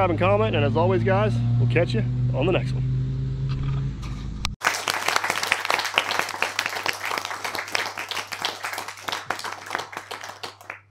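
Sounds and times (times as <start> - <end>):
applause: 4.6 - 10.9.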